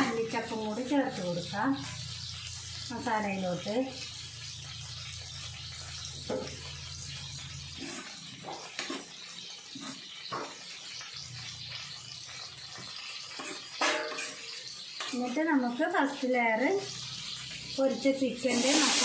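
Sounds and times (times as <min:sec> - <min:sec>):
frying hiss: 0:00.0 - 0:19.0
metal spoon scraping a pan: 0:05.9 - 0:15.5.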